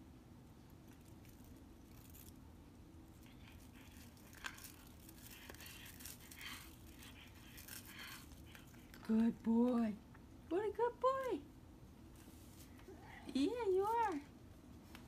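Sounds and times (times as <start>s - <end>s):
cat chewing on a toothbrush: 0.6s - 9.3s.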